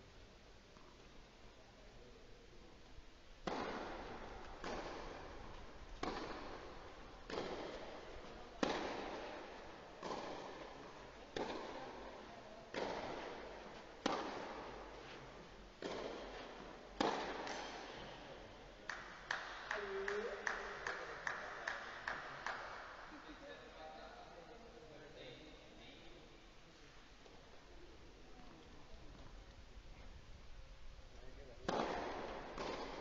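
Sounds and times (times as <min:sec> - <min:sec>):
tennis racket hitting ball: 0:03.4 - 0:18.0, 0:31.6 - 0:33.0.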